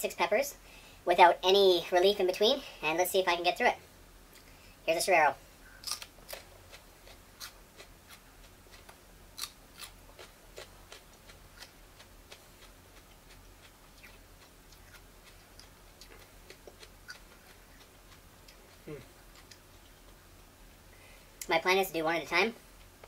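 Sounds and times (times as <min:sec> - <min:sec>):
crunching of chewed pepper: 0:05.8 - 0:20.2.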